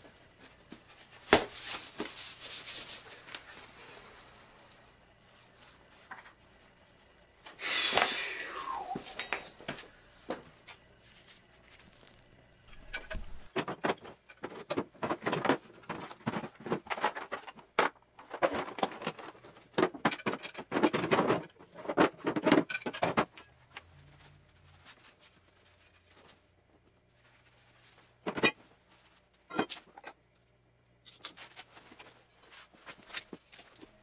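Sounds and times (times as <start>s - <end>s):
clinks and knocks of mower wheel: 12.7s - 23.6s.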